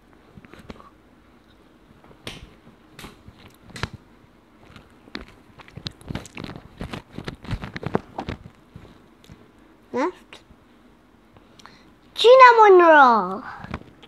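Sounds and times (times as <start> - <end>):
child chewing food: 4.6 - 9.4.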